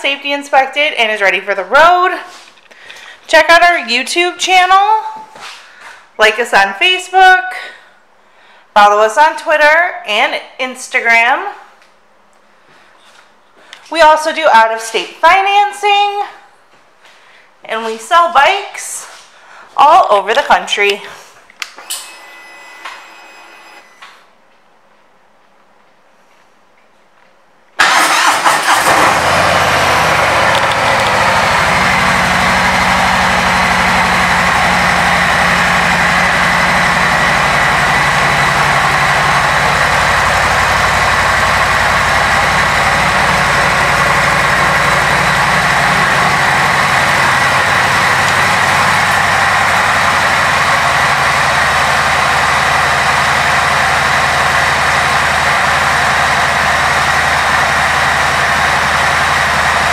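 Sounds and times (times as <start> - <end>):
motorcycle engine starting and idling: 27.8 - 59.9.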